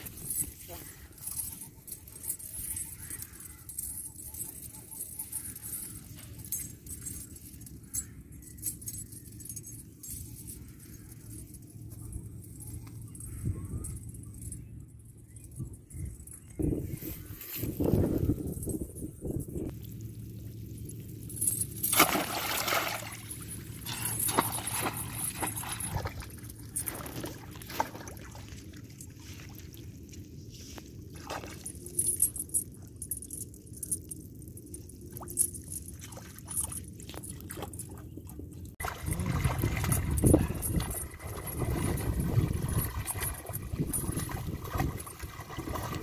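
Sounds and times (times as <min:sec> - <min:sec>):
water splashing and sloshing: 0:19.7 - 0:46.0
fish thrashing in water: 0:21.9 - 0:29.8, 0:38.8 - 0:46.0.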